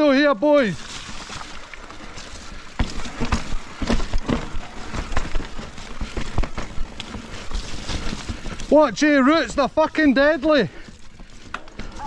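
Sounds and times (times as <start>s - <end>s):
tyre noise rushing: 0.7s - 12.0s
bike knocking and clattering: 0.8s - 12.0s.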